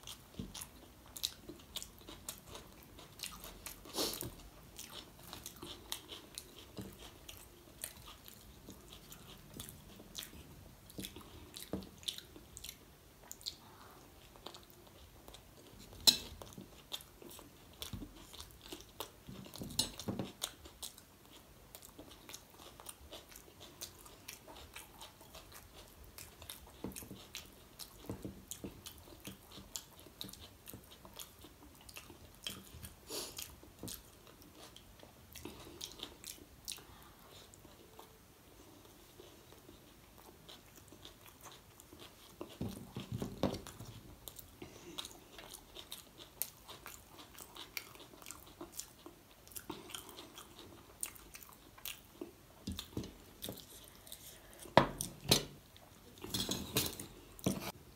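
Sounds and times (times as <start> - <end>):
close chewing and mouth sounds: 0.0 - 57.9.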